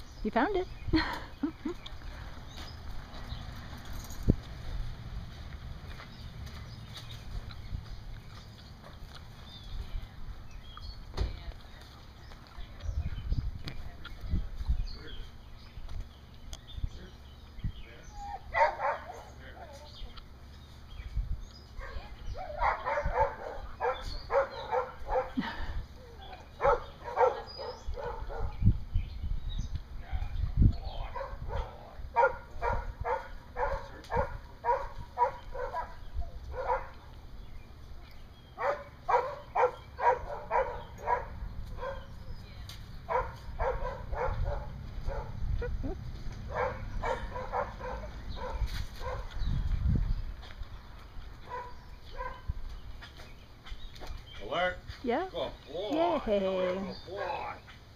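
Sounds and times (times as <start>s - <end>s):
dog barking: 18.5s - 19.4s, 21.8s - 25.4s, 26.6s - 28.6s, 31.1s - 37.0s, 38.6s - 42.2s, 43.1s - 45.4s, 46.5s - 49.3s, 51.5s - 52.5s, 57.2s - 57.4s.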